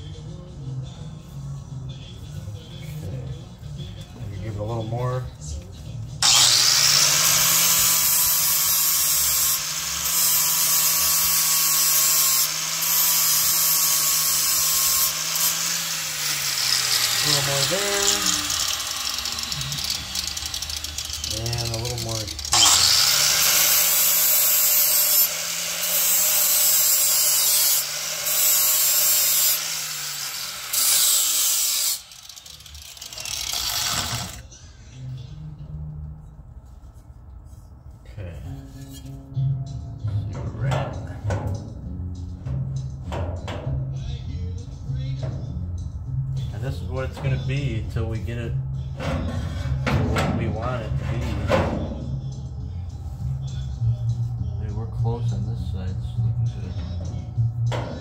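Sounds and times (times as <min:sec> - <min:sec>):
high-speed power tool running: 0:06.2 - 0:34.4.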